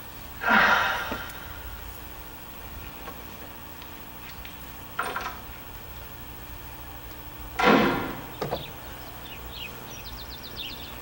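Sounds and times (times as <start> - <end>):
birds chirping: 0.4 - 11.0
door banging shut: 7.6 - 8.7.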